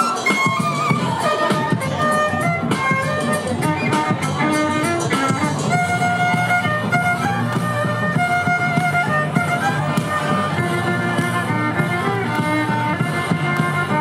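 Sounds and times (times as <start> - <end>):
bowed violin melody: 0.0 - 14.0
low accompaniment: 0.0 - 14.0.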